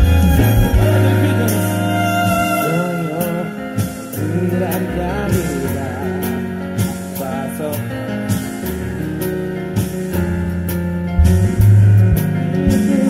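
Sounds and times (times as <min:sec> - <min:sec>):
person singing: 0:00.0 - 0:08.5, 0:12.5 - 0:13.0
band with bass and drums: 0:00.0 - 0:13.0.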